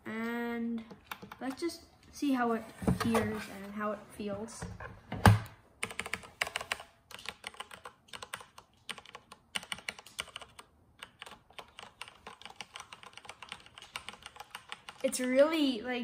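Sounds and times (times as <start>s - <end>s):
mechanical keyboard typing: 0.9s - 1.7s, 5.8s - 15.6s.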